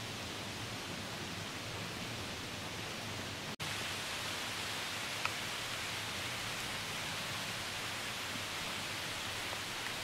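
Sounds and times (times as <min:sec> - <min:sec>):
light rain on leaves: 0:00.0 - 0:10.0.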